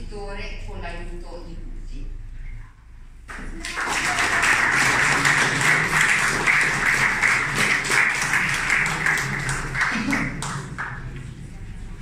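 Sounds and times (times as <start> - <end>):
crowd applauding: 3.3 - 11.2.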